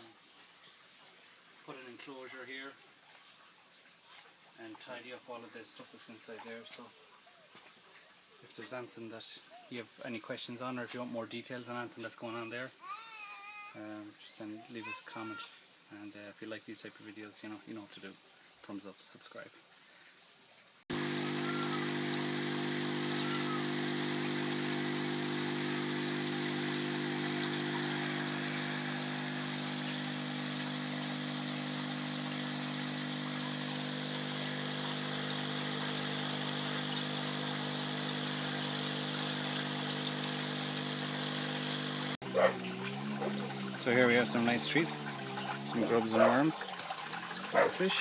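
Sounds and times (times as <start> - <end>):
air pump humming: 20.9 - 47.9
water bubbling and splashing: 20.9 - 48.0.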